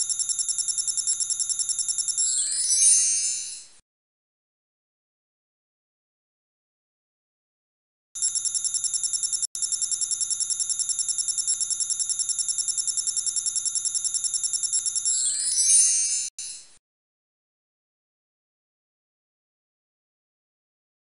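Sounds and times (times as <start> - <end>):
electronic ringing trill: 0.0 - 3.7.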